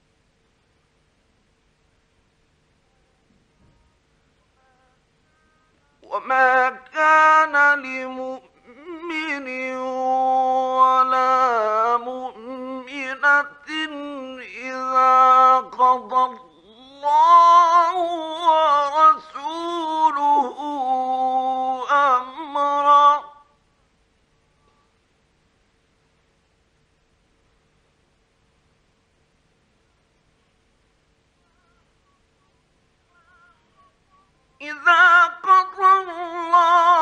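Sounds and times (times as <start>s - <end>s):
man chanting recitation: 3.7s - 23.5s, 33.1s - 37.0s.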